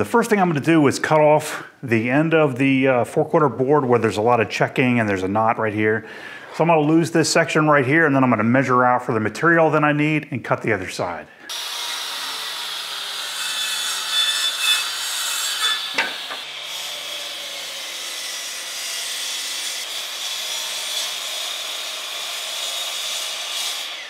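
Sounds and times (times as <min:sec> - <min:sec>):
circular saw cutting wood: 0:11.5 - 0:24.0.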